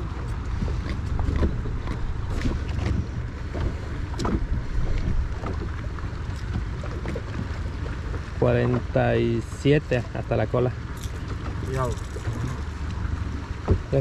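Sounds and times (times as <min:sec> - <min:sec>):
wind buffeting microphone: 0:00.0 - 0:09.0
water noise: 0:00.0 - 0:14.0.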